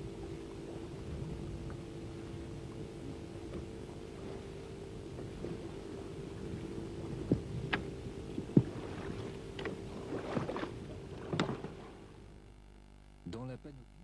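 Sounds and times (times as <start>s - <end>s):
boat engine idling hum: 0.0s - 14.0s.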